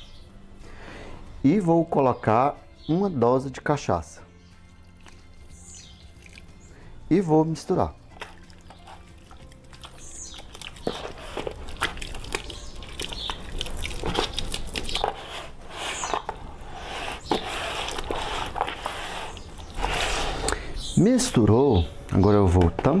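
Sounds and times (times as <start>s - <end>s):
meat squelching in marinade: 4.8s - 6.9s, 7.7s - 20.6s.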